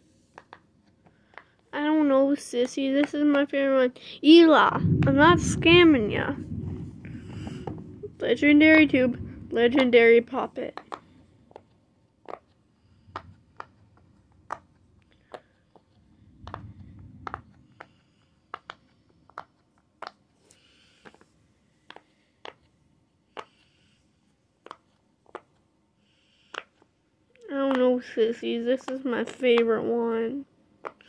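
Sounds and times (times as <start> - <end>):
fidget toy soft pops: 23.3 - 23.8, 26.4 - 26.9, 30.8 - 31.0.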